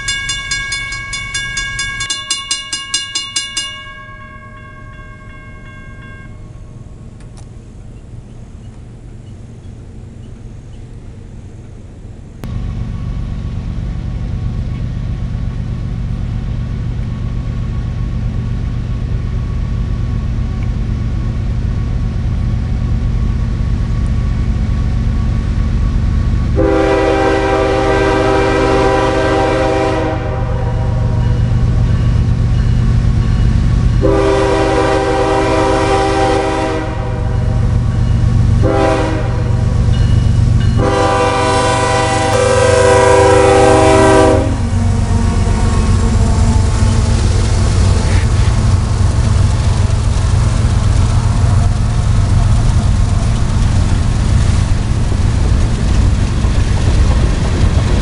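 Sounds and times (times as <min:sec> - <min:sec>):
low locomotive rumble: 0:00.0 - 0:58.0
locomotive air horn blasts: 0:26.6 - 0:31.6, 0:34.0 - 0:37.8, 0:38.6 - 0:39.8, 0:40.8 - 0:47.4.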